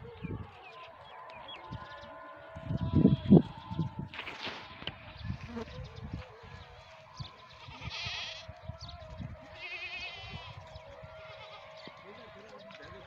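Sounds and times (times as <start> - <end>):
goat kids bleating: 1.9 - 4.0, 5.1 - 13.0.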